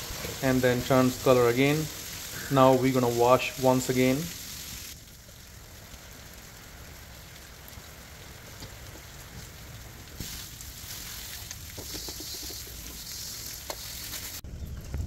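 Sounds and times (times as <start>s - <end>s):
hose spray hissing on wok: 0.0s - 4.9s, 10.2s - 14.4s.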